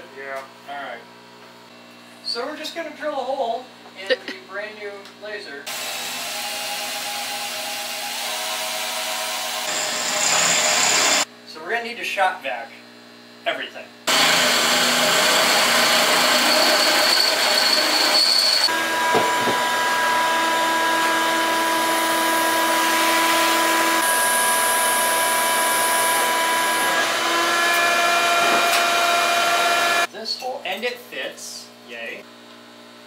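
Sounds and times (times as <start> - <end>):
shop vacuum running: 5.6 - 11.3, 14.1 - 30.1.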